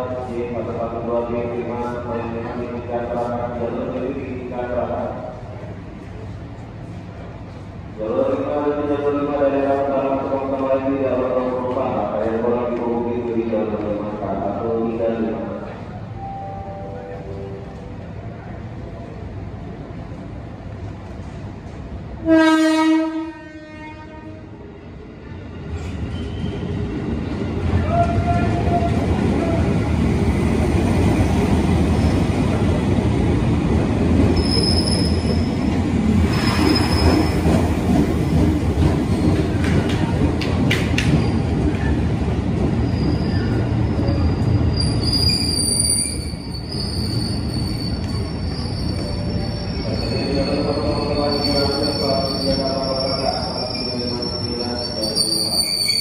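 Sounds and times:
train rumbling past: 0.0s - 56.0s
train horn: 22.2s - 24.5s
high-pitched wheel squeals: 34.4s - 35.5s, 42.9s - 56.0s.

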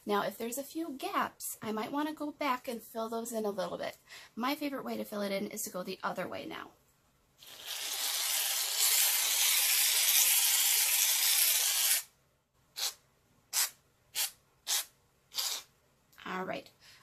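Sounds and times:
aerosol can spraying foam: 13.6s - 15.6s.

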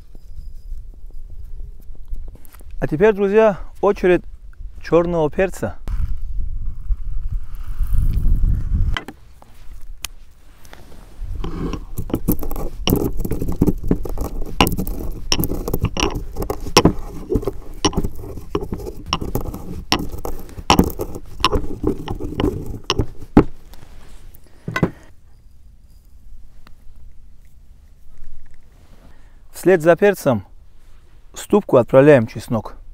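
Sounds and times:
pestle pounding in a mortar: 11.4s - 23.6s.

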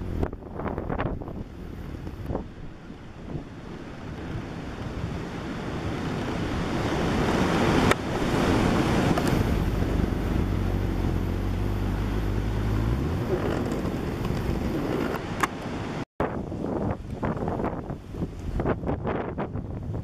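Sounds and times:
heavy sea surging against quay: 0.0s - 20.0s
strong wind buffeting microphone: 0.0s - 20.0s
low steady rumble: 8.2s - 15.2s.

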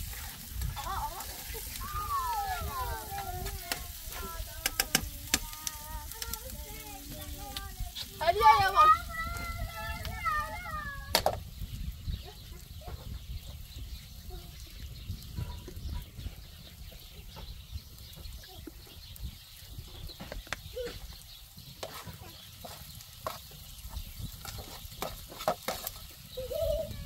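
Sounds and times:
food sizzling in a frying pan: 0.0s - 12.3s, 18.8s - 27.0s
spoon scraping in a pan: 2.7s - 6.1s, 21.8s - 26.1s.

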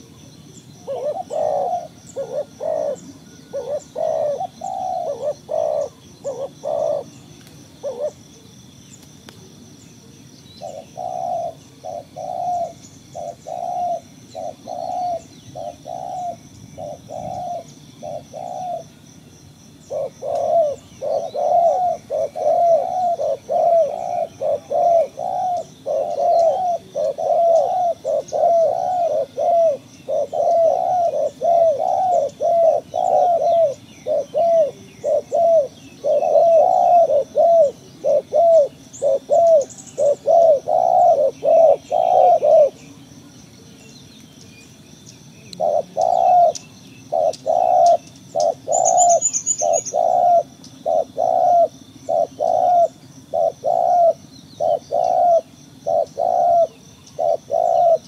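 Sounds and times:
doves cooing: 0.0s - 8.6s, 10.6s - 19.1s, 19.7s - 43.8s, 45.4s - 58.0s.

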